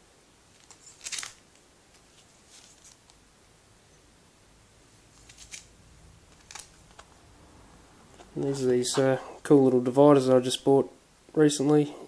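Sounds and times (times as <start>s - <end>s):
plastic crinkle: 0.5s - 3.2s, 6.3s - 7.1s.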